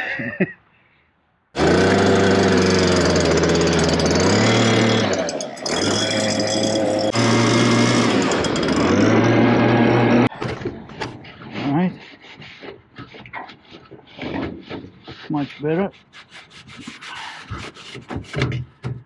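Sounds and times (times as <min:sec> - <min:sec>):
leaf blower running: 0:01.6 - 0:10.3.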